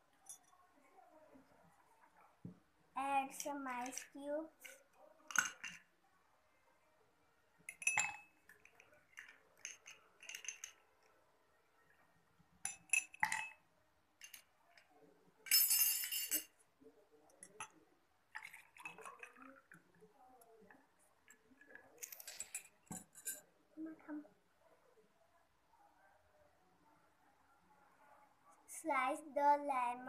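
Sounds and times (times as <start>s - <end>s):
ice and spoon clinking on glass: 7.7s - 10.8s, 12.6s - 13.6s, 15.5s - 16.6s.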